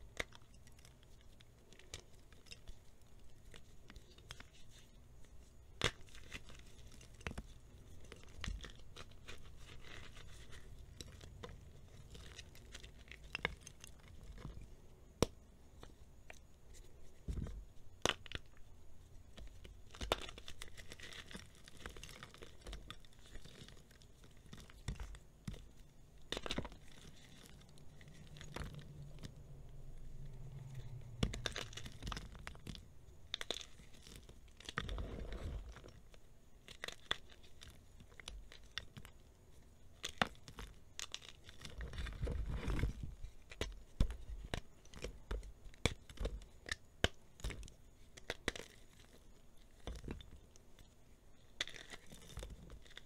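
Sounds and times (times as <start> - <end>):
gritty crunching of powder: 19.3 - 39.2
chalk cracking and snapping: 40.0 - 53.0.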